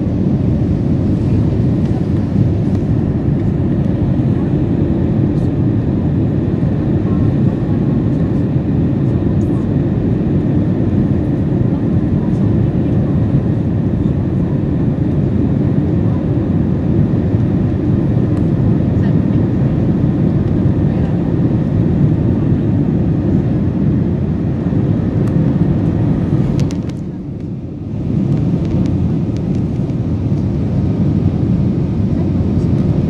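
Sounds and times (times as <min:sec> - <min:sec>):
jet airliner cabin rumble: 0:00.0 - 0:33.0.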